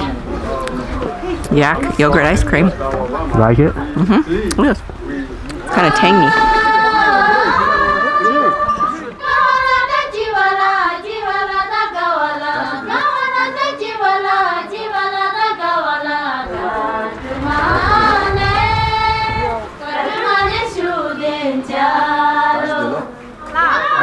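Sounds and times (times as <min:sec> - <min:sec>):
high singing voice: 0:05.7 - 0:24.0.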